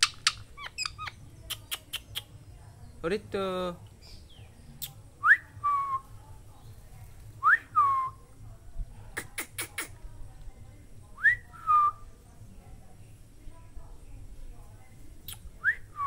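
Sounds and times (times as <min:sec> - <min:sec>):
sharp clicks: 0:00.0 - 0:02.3.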